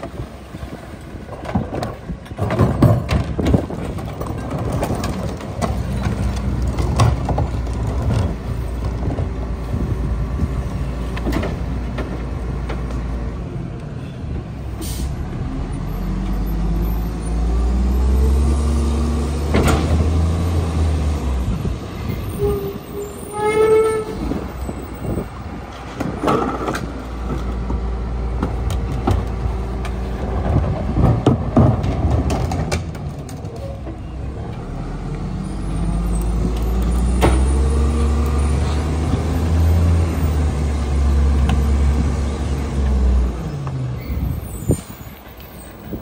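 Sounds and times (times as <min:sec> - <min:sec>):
diesel truck engine revving: 0:14.8 - 0:22.6, 0:34.3 - 0:44.4.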